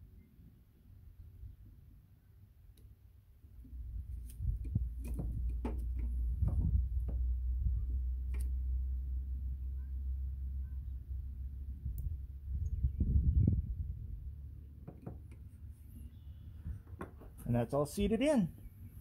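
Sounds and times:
low rumble: 6.2s - 14.8s.

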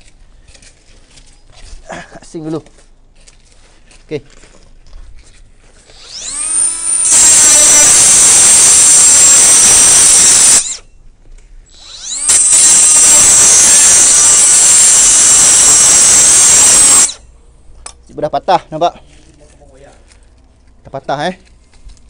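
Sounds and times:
cut-off tool whining and cutting metal: 5.8s - 11.0s, 11.7s - 17.3s.

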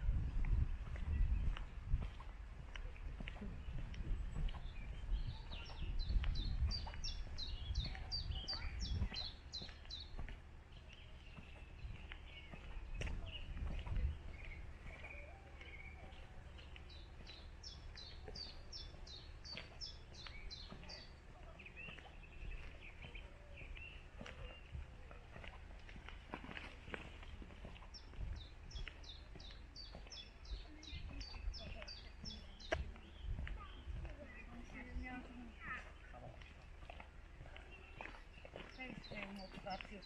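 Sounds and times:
songbird singing falling notes: 0.3s - 40.0s.

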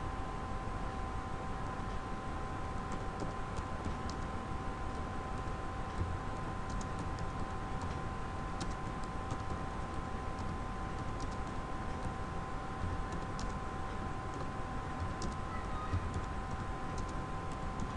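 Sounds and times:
keyboard typing clicks: 2.9s - 4.3s, 4.9s - 8.0s, 8.6s - 9.6s, 10.3s - 12.2s, 12.8s - 17.9s.

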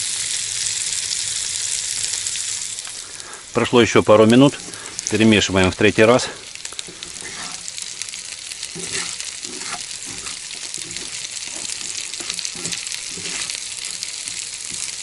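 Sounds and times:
potatoes sizzling in oil: 0.0s - 15.0s
wooden spatula scraping pan: 6.8s - 7.8s, 8.7s - 15.0s.

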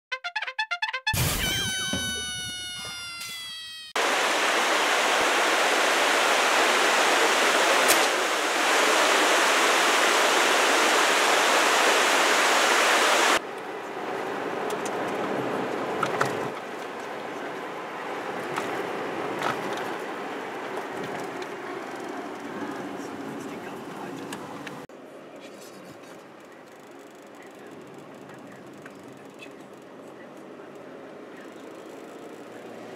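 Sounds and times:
mountain stream rushing: 4.0s - 17.0s
car road noise: 13.0s - 25.4s, 27.3s - 32.9s.

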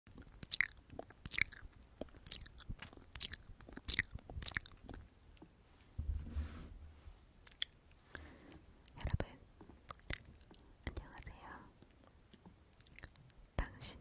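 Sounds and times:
wet lip smacks and mouth clicks: 0.1s - 5.1s, 7.4s - 7.8s, 9.8s - 13.4s
low bump: 6.0s - 7.2s.

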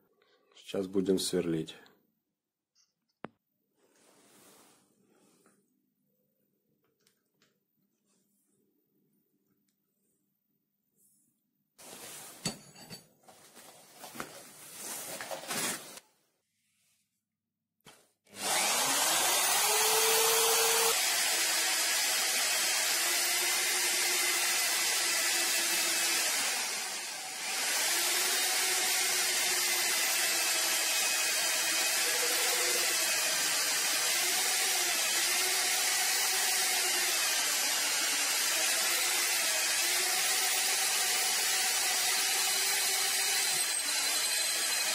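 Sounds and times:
drill motor whining: 18.4s - 44.9s.

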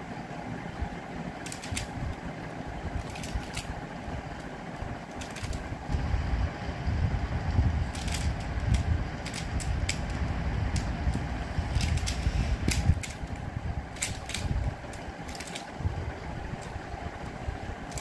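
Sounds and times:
low rumble: 0.0s - 18.0s
puzzle pieces clicking: 1.4s - 2.0s, 3.0s - 3.7s, 5.1s - 5.6s, 7.9s - 10.1s, 10.7s - 15.7s.

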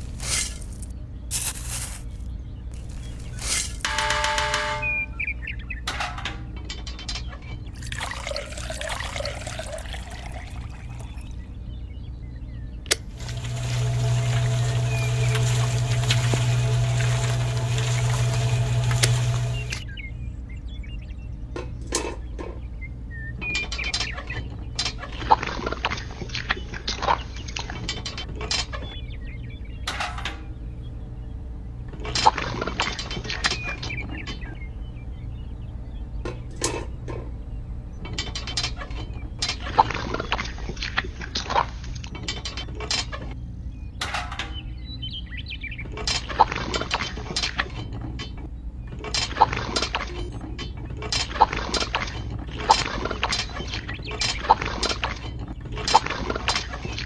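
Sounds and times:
steady low hum: 0.0s - 42.1s.

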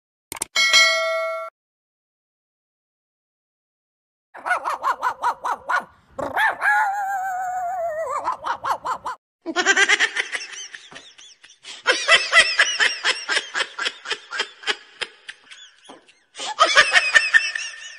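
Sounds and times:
high-pitched cackling laughter: 4.4s - 5.9s, 6.5s - 17.9s
man imitating a small dog: 4.6s - 9.2s.

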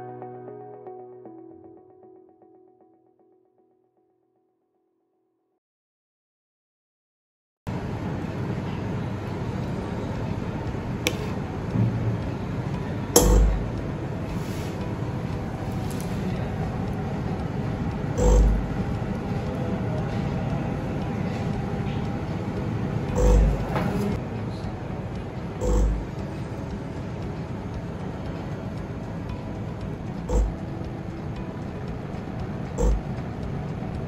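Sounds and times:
mechanical hum and hiss: 7.7s - 34.0s
sharp click: 11.1s - 11.4s, 13.2s - 13.8s, 18.2s - 18.8s, 23.2s - 23.7s, 25.6s - 26.2s, 32.8s - 33.2s
dull low thump: 13.2s - 13.8s, 18.2s - 18.8s, 23.2s - 23.7s, 25.6s - 26.1s, 30.3s - 30.6s, 32.8s - 33.2s.

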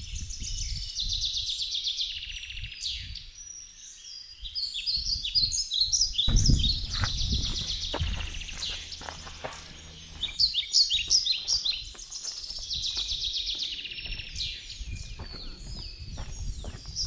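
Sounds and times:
songbirds chirping: 0.0s - 17.0s
low rumble: 6.2s - 11.6s.

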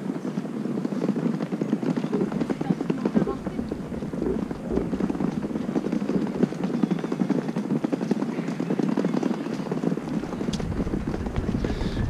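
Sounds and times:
suitcase wheels rattling on bricks: 0.2s - 12.0s.

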